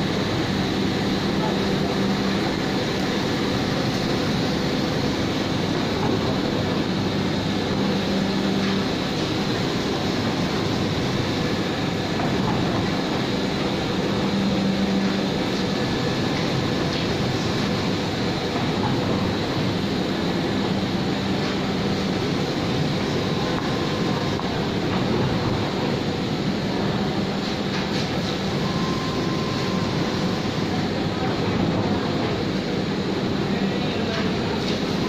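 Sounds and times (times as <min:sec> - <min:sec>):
thin high whine: 0:27.2 - 0:31.1.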